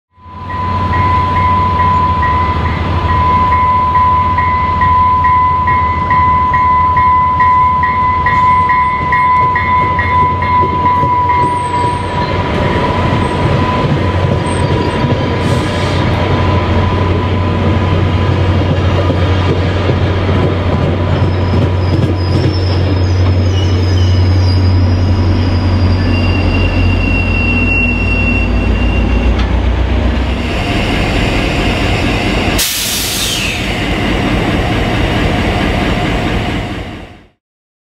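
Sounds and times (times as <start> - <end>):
diesel locomotive engine: 0.1 - 37.4
train bell ringing: 0.2 - 14.9
train cars rolling past: 0.2 - 37.4
brakes squealing: 21.1 - 34.8.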